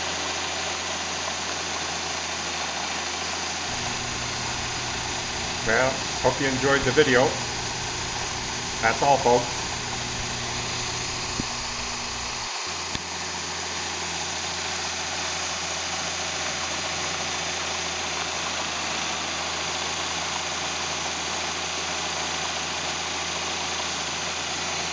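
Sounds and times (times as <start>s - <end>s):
combine harvester droning: 3.7s - 12.5s
grain pouring hiss: 3.7s - 12.5s.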